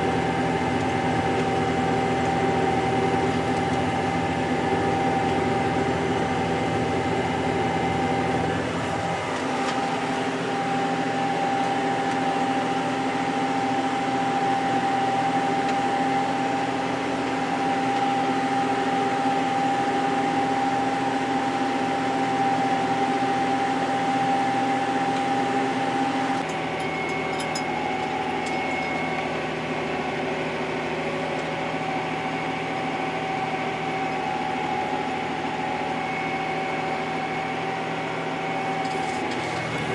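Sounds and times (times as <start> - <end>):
tractor engine drone: 0.0 - 39.9
high whine: 23.2 - 39.9.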